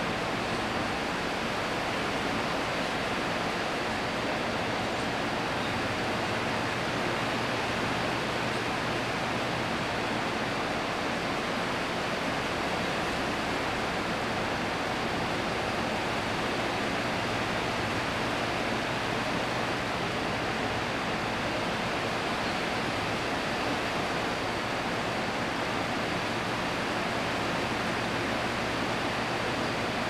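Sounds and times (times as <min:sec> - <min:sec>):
steady background hiss: 0:00.0 - 0:30.0.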